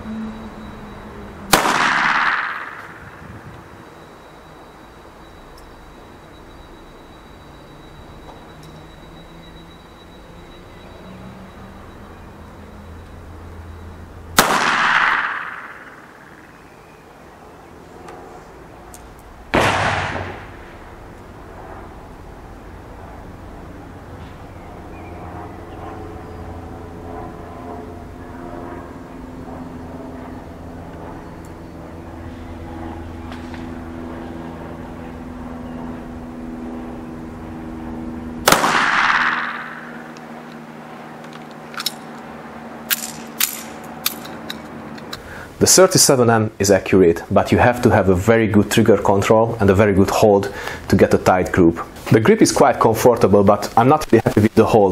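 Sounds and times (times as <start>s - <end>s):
steady drone: 0.0s - 54.9s
pistol shot with echo: 1.5s - 3.2s, 14.4s - 16.1s, 19.5s - 20.5s, 38.4s - 40.0s.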